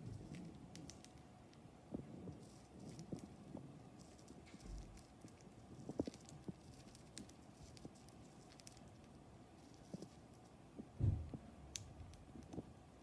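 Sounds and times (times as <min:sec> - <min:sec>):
dull thump: 0:11.0 - 0:11.4.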